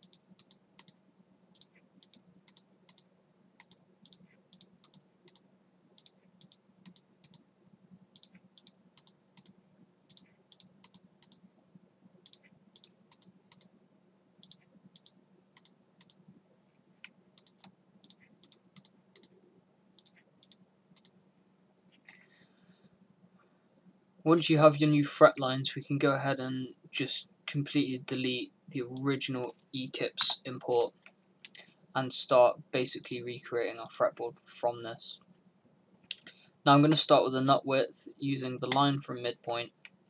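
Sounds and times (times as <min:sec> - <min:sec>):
computer mouse clicking: 0:00.0 - 0:05.4, 0:06.0 - 0:07.4, 0:08.2 - 0:11.5, 0:12.2 - 0:13.7, 0:14.4 - 0:16.2, 0:17.0 - 0:19.4, 0:20.0 - 0:21.2
faint steady hum: 0:00.0 - 0:40.0.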